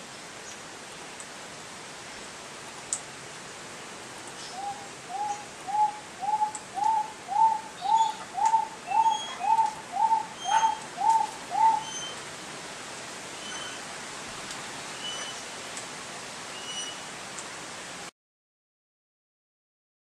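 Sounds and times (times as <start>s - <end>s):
small birds chirping: 4.4s - 12.2s
pigeon calling: 4.6s - 12.2s.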